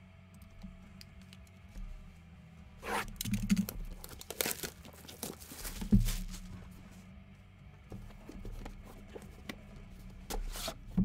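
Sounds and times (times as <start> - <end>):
packaging ripping and crinkling: 2.9 - 6.5.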